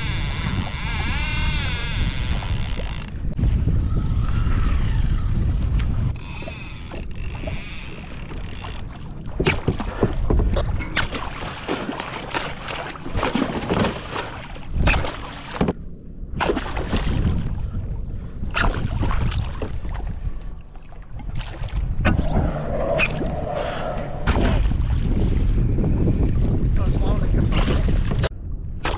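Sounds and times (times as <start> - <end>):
wind buffeting microphone: 0.0 - 11.4, 16.2 - 28.9
water splashing around kayak: 5.4 - 28.9
fish thrashing splashes and knocks: 6.9 - 15.8, 16.4 - 17.5, 18.5 - 20.1.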